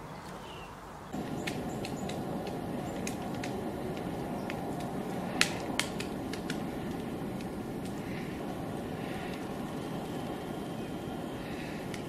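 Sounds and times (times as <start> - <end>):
steady low rumble: 1.2 - 12.0
woodpecker tapping on tree: 1.2 - 12.0.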